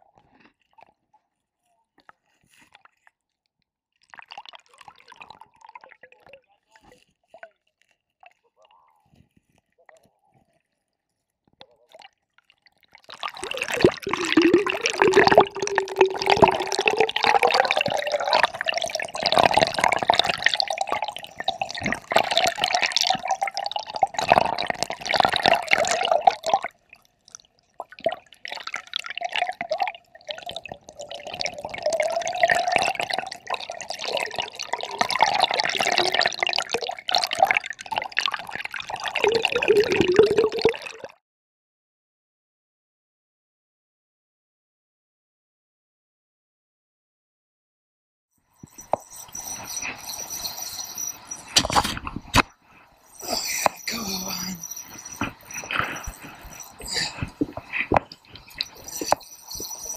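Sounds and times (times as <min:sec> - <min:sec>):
underwater river current: 0:13.0 - 0:41.1.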